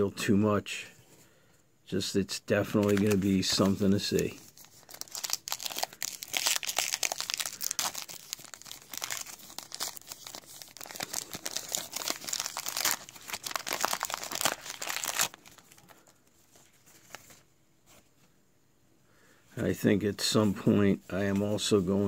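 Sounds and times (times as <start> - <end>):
card pack wrapper crinkling: 2.6 - 17.4.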